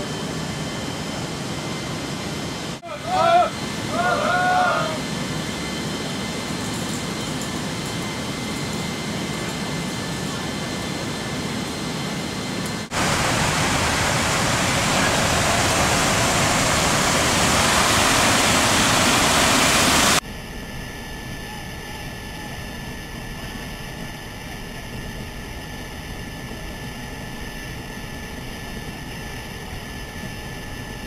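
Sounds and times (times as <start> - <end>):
aircraft engines and rushing air: 0.0 - 21.4.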